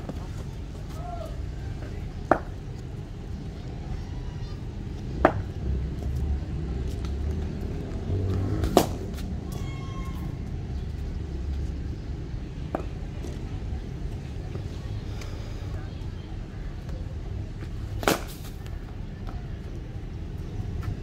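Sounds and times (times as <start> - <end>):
steady low rumble: 0.0 - 21.0
cricket bat striking ball: 8.6 - 9.1.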